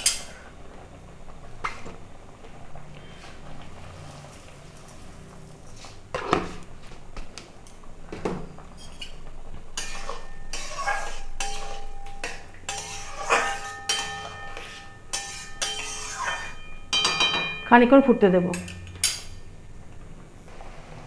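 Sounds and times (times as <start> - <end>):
metal spatula scraping pan: 8.8 - 17.7
metal knocks on pan: 16.9 - 17.7.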